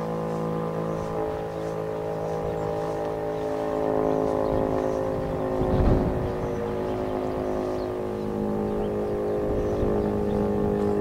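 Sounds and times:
low rumble: 0.0s - 7.9s
warning siren steady tone: 0.0s - 11.0s.

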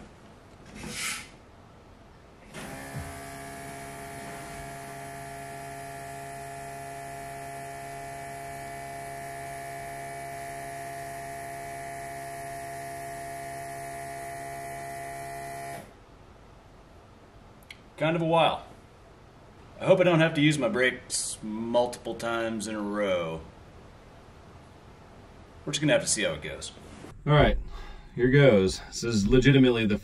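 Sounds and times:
electric vacuum pump humming: 2.5s - 15.9s.

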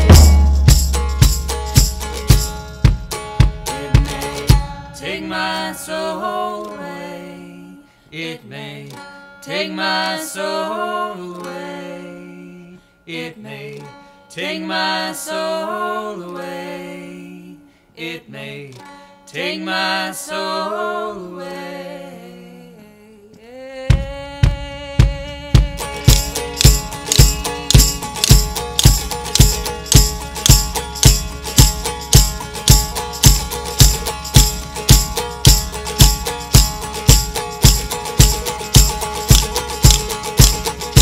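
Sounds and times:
person singing: 0.0s - 0.7s, 3.6s - 18.8s, 19.4s - 31.2s
tambourine hits: 0.0s - 4.9s, 25.8s - 41.0s
bass drum hits: 0.0s - 5.2s, 23.9s - 41.0s
plucked stringed instrument: 0.0s - 7.7s, 25.6s - 41.0s.

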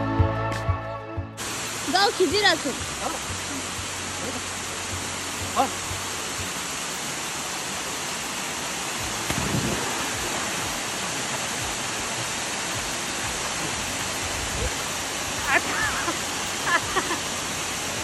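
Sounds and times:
waterfall rushing: 1.4s - 18.0s
person splashing into pool: 9.1s - 10.6s.

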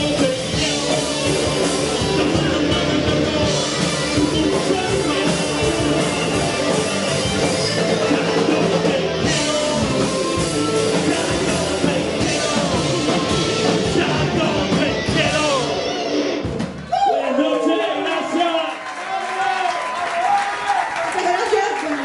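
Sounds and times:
drum beat: 0.0s - 15.7s
singer on microphone: 0.0s - 15.9s
electric guitars: 0.0s - 17.0s
bass guitar: 0.0s - 17.1s.

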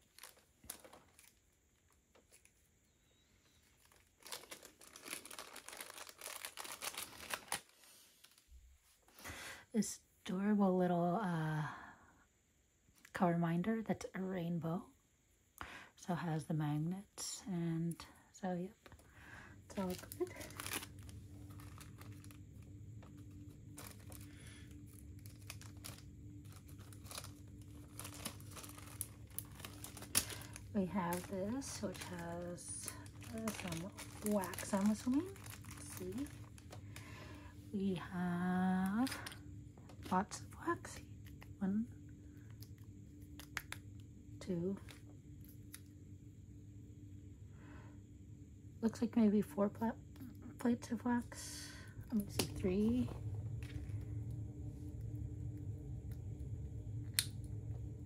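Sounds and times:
packaging rustling: 0.0s - 8.6s, 19.7s - 37.5s, 38.8s - 40.3s
plastic bag crinkling: 0.0s - 9.1s, 18.8s - 41.6s, 42.5s - 43.9s, 51.8s - 58.0s
steady low hum: 0.0s - 58.0s.

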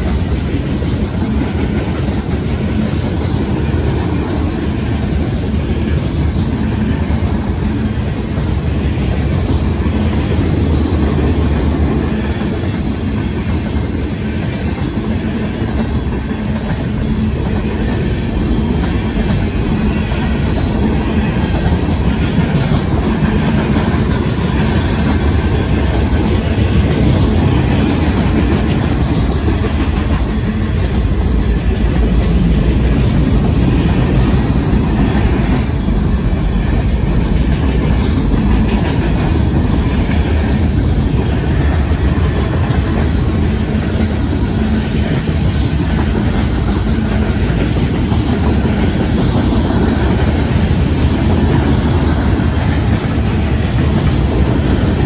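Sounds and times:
freight train rumbling by: 0.0s - 55.0s.

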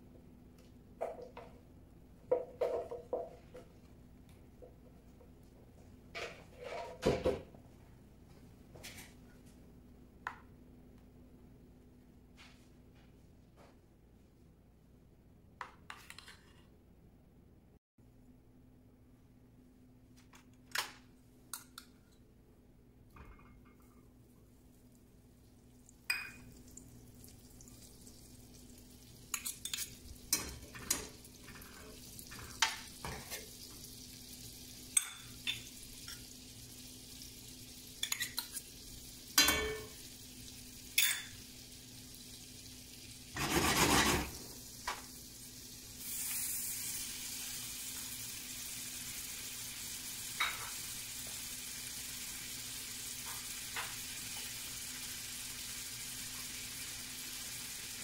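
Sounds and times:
bacon sizzling in butter: 26.1s - 58.0s
metal spoon tapping and scraping: 38.0s - 38.6s.

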